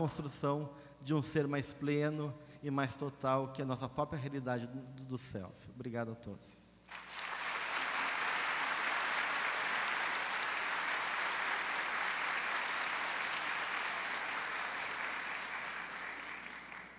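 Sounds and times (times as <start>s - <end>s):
large audience applauding: 6.9s - 16.9s.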